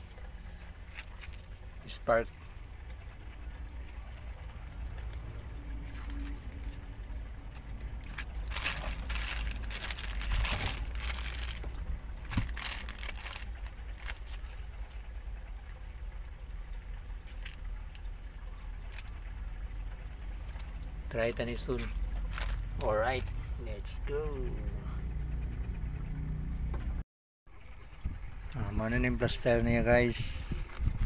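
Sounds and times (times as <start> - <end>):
steady low rumble: 0.0 - 27.0
plastic bag crinkling: 8.0 - 14.6, 22.2 - 22.6.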